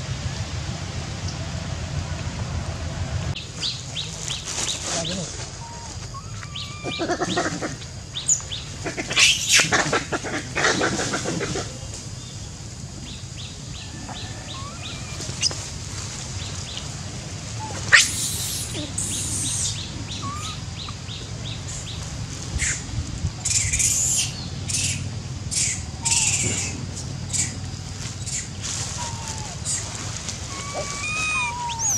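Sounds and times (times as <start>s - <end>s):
birds chirping: 3.3s - 31.9s
macaques squealing and screeching: 4.8s - 11.8s, 13.8s - 15.7s, 17.6s - 21.0s, 23.4s - 31.9s.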